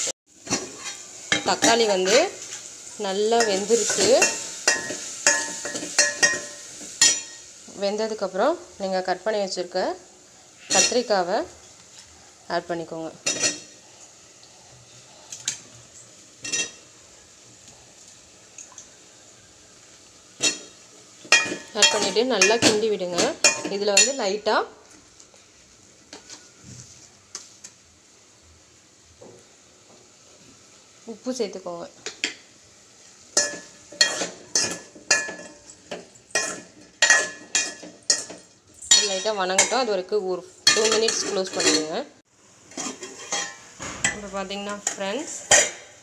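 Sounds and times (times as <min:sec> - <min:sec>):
metal spoon clinking on pot: 0:03.4 - 0:07.4, 0:33.4 - 0:39.8.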